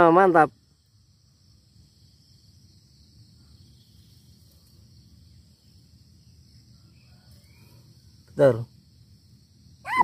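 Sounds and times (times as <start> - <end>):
insects droning: 0.0 - 10.0.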